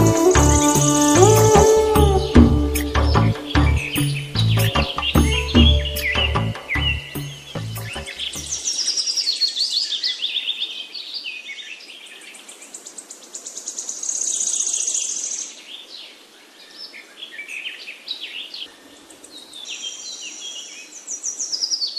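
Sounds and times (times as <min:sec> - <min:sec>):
rapid high bird trill: 0:00.0 - 0:08.6
birds chirping: 0:00.0 - 0:10.3.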